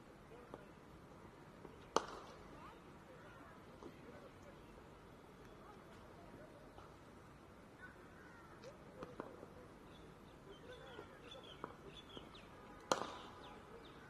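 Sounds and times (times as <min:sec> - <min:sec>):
cricket bat striking ball: 0:01.9 - 0:02.3, 0:12.9 - 0:13.3
birds chirping: 0:09.8 - 0:14.0.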